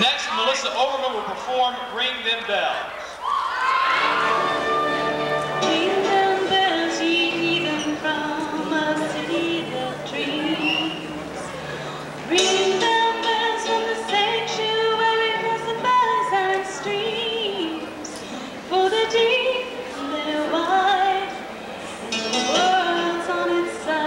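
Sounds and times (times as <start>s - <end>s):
woman singing into microphone: 5.4s - 24.0s.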